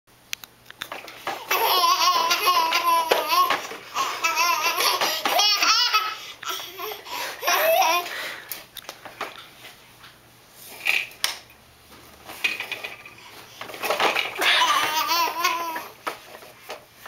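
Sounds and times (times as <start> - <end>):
toddler laughing hard: 1.4 - 8.1, 14.4 - 15.9.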